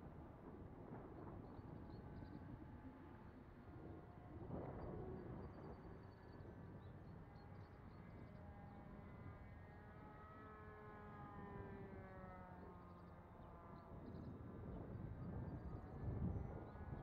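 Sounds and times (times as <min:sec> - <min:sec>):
wind rumble on microphone: 0:00.0 - 0:09.6, 0:13.2 - 0:17.0
model airplane engine drone: 0:00.0 - 0:17.0.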